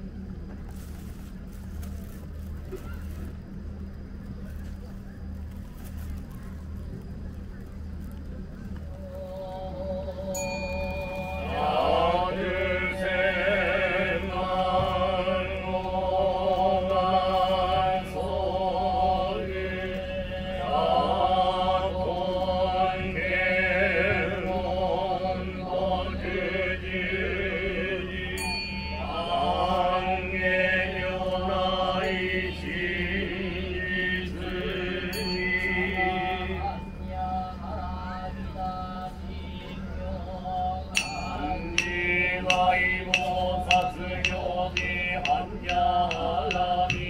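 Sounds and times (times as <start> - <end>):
monks chanting: 9.0 - 39.1, 39.8 - 47.0.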